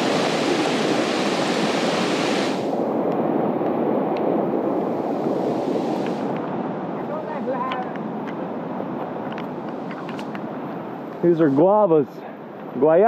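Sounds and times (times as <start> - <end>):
stream rushing over rocks: 0.0 - 2.8.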